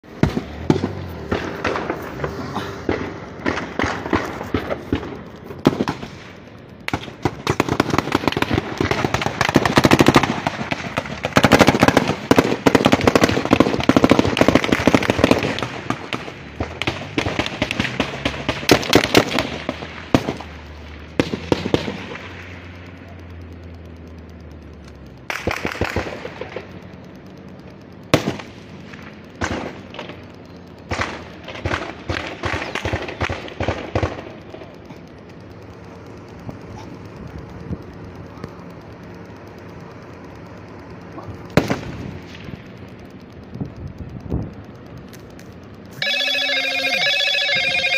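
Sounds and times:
rapid automatic gunfire: 0:00.2 - 0:22.7, 0:25.3 - 0:26.7, 0:30.9 - 0:34.9.

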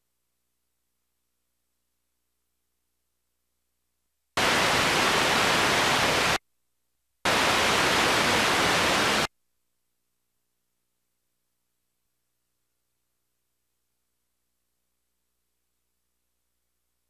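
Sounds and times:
loud static hiss: 0:04.4 - 0:06.4, 0:07.3 - 0:09.3.

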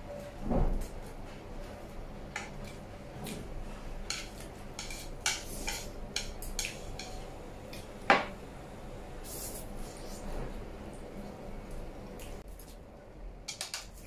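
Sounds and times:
chopsticks clicking on a plate: 0:04.1 - 0:07.9.

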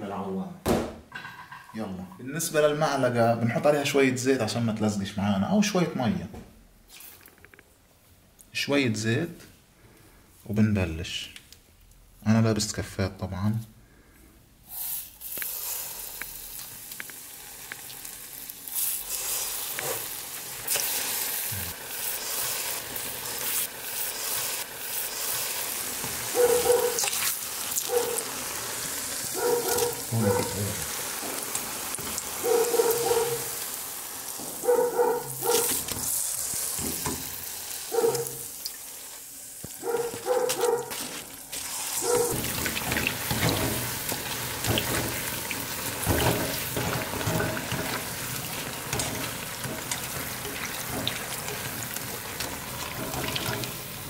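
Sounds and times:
dough sizzling in hot oil: 0:14.6 - 0:40.2, 0:40.9 - 0:54.0
dog barking: 0:26.3 - 0:27.1, 0:27.8 - 0:28.3, 0:29.3 - 0:30.8, 0:32.4 - 0:33.6, 0:34.6 - 0:35.8, 0:37.9 - 0:38.4, 0:39.8 - 0:41.0, 0:42.0 - 0:42.4.

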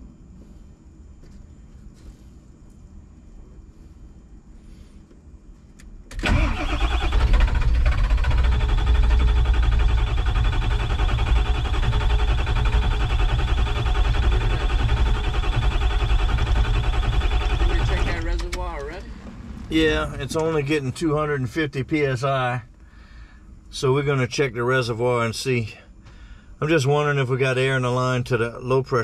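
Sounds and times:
starter cranking diesel engine: 0:06.1 - 0:21.4.

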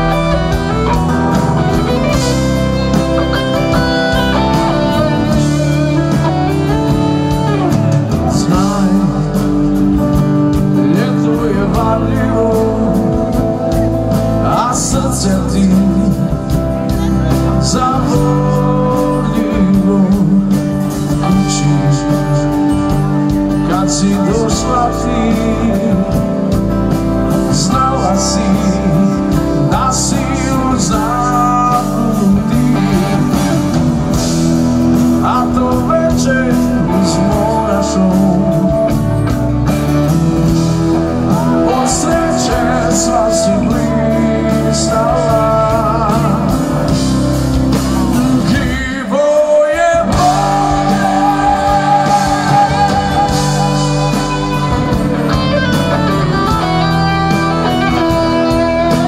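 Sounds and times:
rock band playing: 0:00.0 - 0:59.0
person singing lead: 0:40.1 - 0:47.0, 0:47.9 - 0:59.0.

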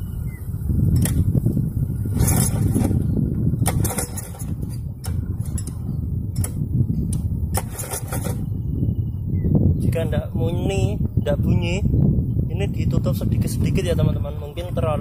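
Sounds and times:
engine turned over by hand: 0:02.1 - 0:08.6.

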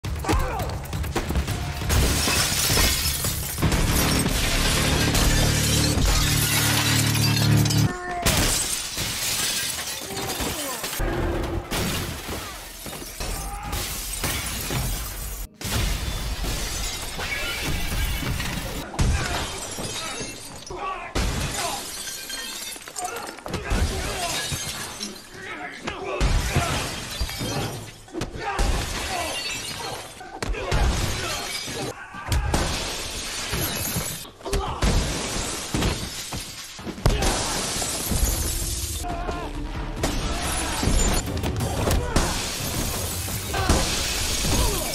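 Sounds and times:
bodies crashing through glass: 0:01.2 - 0:25.5, 0:26.2 - 0:39.1, 0:39.9 - 0:44.9
falling glass shards crackling: 0:01.9 - 0:11.0
glass shattering: 0:01.9 - 0:11.0, 0:11.7 - 0:25.5, 0:26.2 - 0:39.0, 0:40.0 - 0:44.9.

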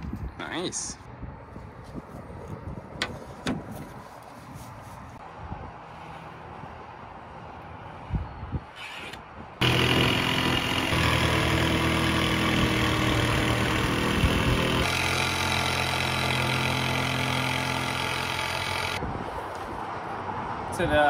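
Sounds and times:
jigsaw cutting plywood: 0:09.6 - 0:19.0.

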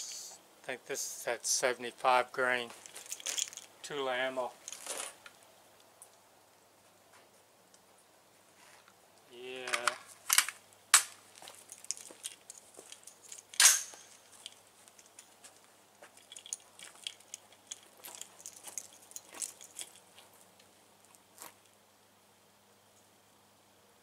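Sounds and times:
light rustles: 0:02.6 - 0:03.8, 0:04.4 - 0:05.5, 0:09.6 - 0:21.7
rifle handling clicks: 0:09.7 - 0:11.2, 0:11.9 - 0:15.2
rifle clatter: 0:09.7 - 0:15.3.

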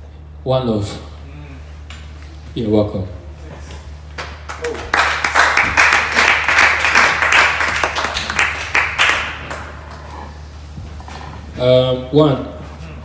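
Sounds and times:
small audience clapping: 0:04.1 - 0:10.4.

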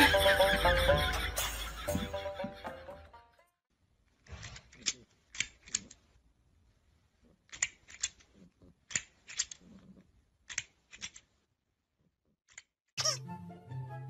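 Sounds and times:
plastic toy clicking: 0:04.6 - 0:06.1, 0:07.4 - 0:09.7, 0:10.4 - 0:11.4.

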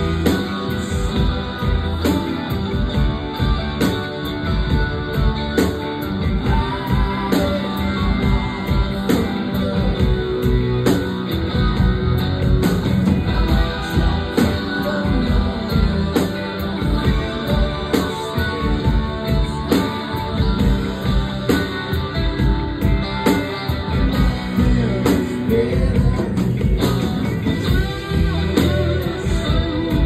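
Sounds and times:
drums keeping a steady beat: 0:00.0 - 0:30.0
electric guitar: 0:00.0 - 0:30.0.

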